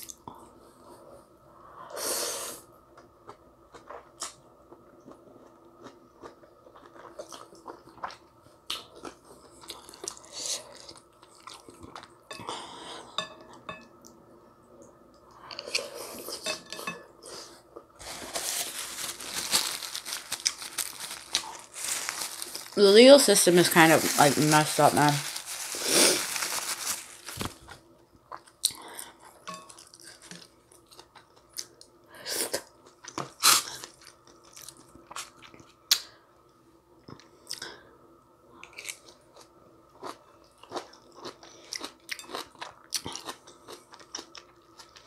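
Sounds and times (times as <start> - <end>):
paper napkin rustling: 18.0 - 27.7.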